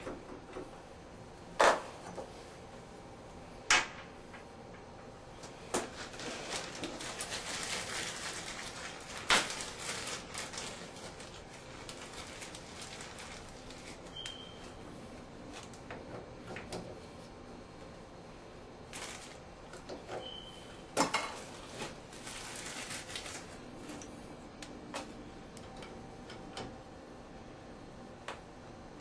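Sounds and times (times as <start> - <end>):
plastic bag crinkling: 5.8 - 14.6, 18.9 - 19.5, 21.2 - 24.1.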